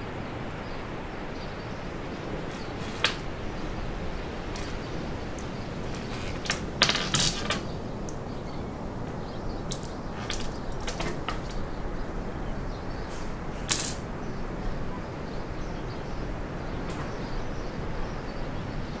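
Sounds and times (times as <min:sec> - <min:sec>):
low background noise: 0:00.0 - 0:19.0
small clicks and taps on table: 0:04.6 - 0:08.2, 0:09.7 - 0:11.6.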